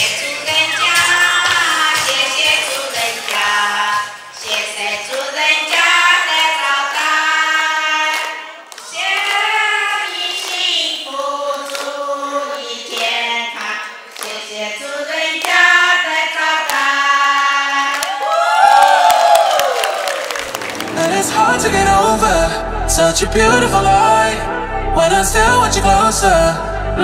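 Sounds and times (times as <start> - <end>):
women singing together: 0.0 - 18.5
hand-clapping: 0.9 - 5.9, 8.1 - 9.6, 10.4 - 10.6, 11.5 - 14.4.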